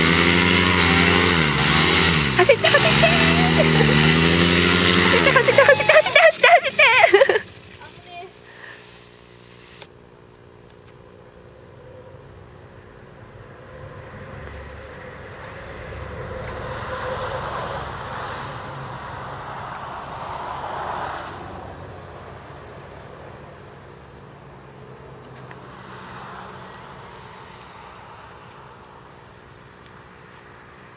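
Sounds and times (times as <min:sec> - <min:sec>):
paramotor engine and propeller: 0:00.0 - 0:20.2.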